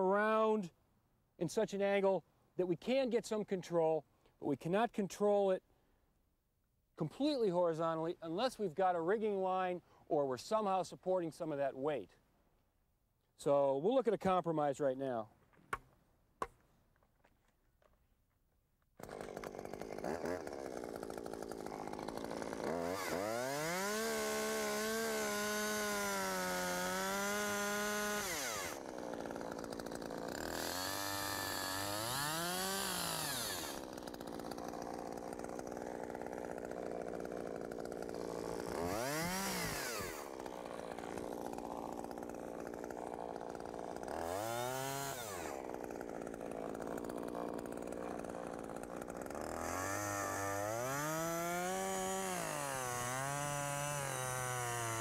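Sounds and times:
chainsaw revving and idling: 19.0 - 55.0.

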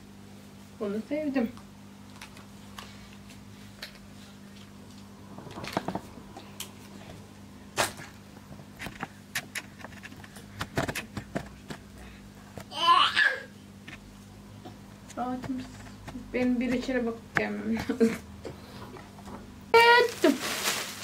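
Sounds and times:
steady low hum: 0.0 - 19.8
clothes rustling: 19.8 - 21.0.

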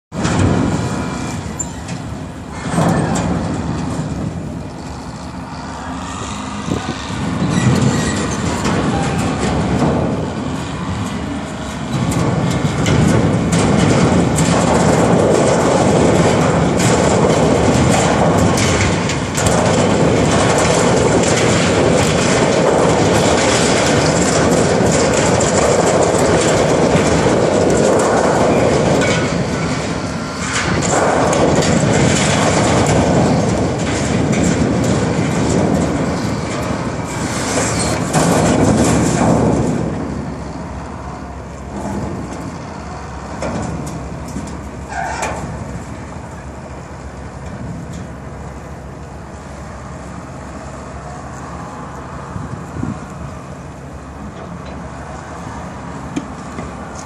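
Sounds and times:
machine rumble: 0.1 - 57.0
sheet metal grinding and crunching: 0.1 - 57.0
metal clanks: 6.2 - 40.7.

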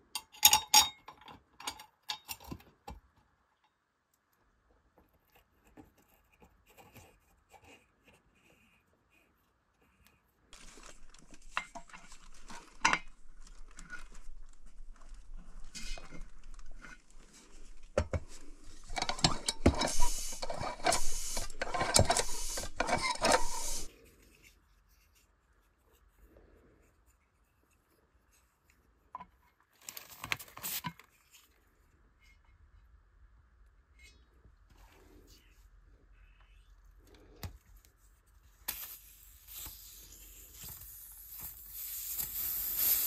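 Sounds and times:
metal tools scraping and clinking: 0.1 - 2.6, 15.6 - 23.9
short hiss of air: 19.8 - 20.4, 38.7 - 43.0.

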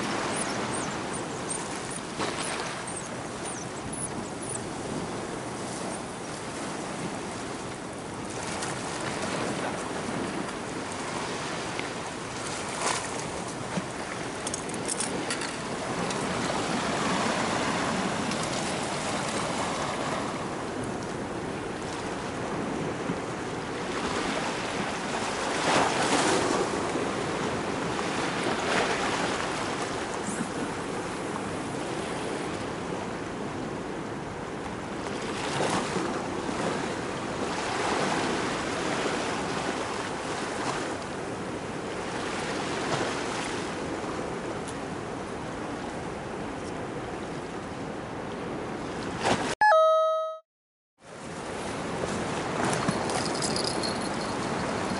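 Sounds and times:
sea waves washing against quay: 0.0 - 49.6, 51.1 - 54.9.

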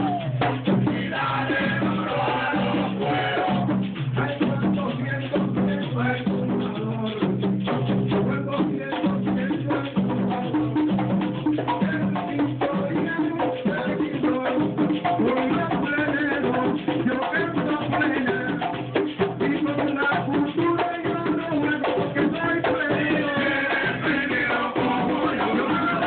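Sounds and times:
voices singing: 0.0 - 7.0, 19.4 - 26.0
frame drums beaten in fast rhythm: 0.0 - 26.0.

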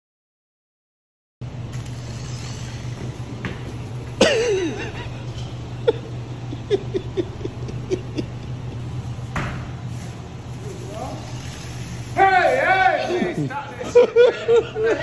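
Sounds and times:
low hum: 1.4 - 12.2
man laughing: 4.2 - 9.0, 12.9 - 15.0.

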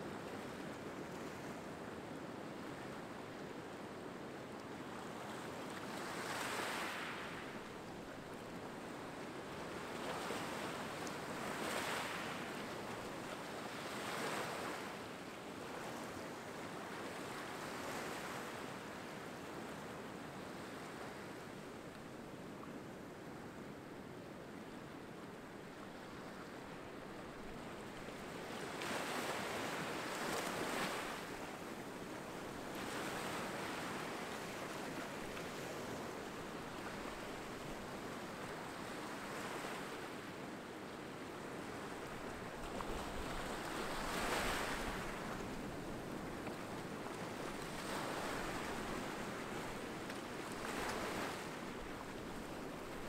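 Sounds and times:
waves washing on beach: 0.6 - 23.5, 25.3 - 53.0.

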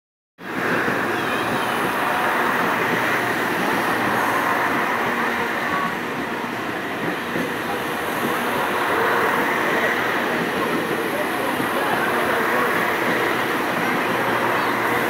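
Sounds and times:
train wheels rumbling on rails: 0.4 - 15.0.

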